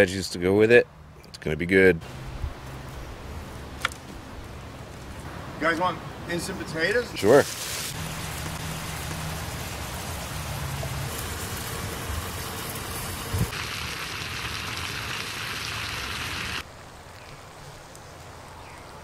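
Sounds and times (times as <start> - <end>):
food sizzling in a skillet: 7.3 - 16.6.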